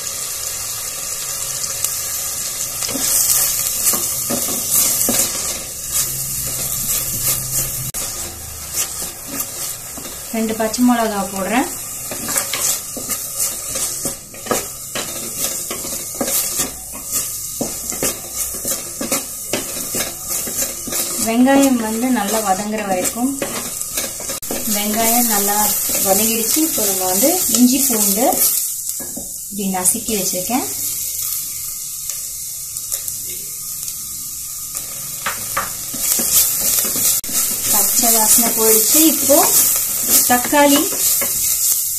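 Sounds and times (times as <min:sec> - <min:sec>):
onions sizzling in hot oil: 0:00.0 - 0:41.9
wooden spatula scraping clay pot: 0:12.1 - 0:27.6.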